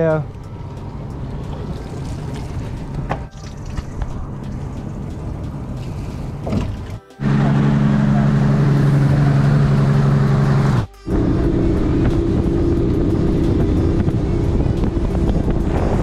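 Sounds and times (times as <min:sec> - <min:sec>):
rushing wind and water: 0:00.0 - 0:07.0, 0:11.1 - 0:16.0
outboard motor running: 0:05.8 - 0:16.0.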